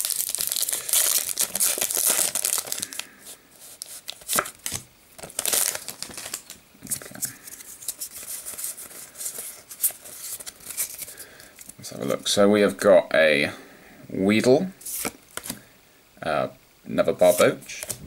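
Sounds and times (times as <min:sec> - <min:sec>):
foil wrapper tearing and crinkling: 0:00.0 - 0:11.2.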